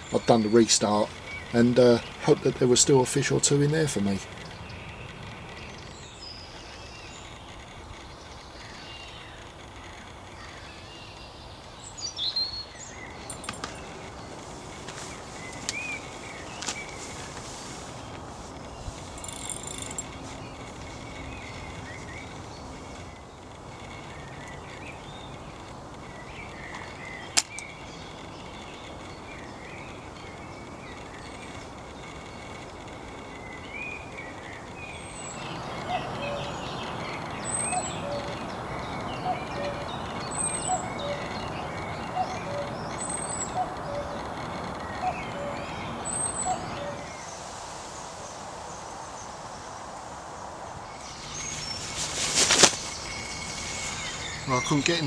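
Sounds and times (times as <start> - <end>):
small birds singing and calling: 0.0 - 49.5, 50.4 - 55.0
sharp click: 27.4 - 27.7.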